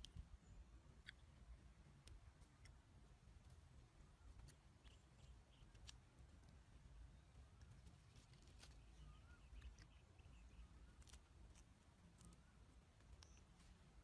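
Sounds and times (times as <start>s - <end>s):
soft clicks: 0.0s - 0.3s, 7.6s - 13.8s
distant bird chirps: 0.0s - 14.0s.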